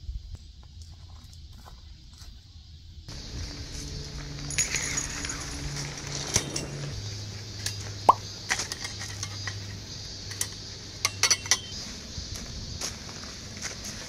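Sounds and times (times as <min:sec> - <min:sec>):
small hard objects clinking: 0:03.1 - 0:07.0.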